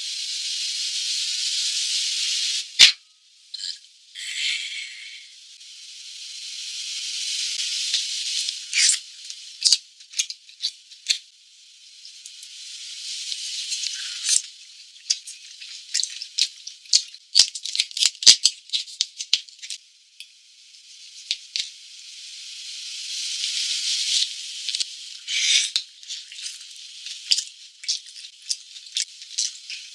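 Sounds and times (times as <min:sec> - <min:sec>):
chewing: 0:26.0 - 0:29.9.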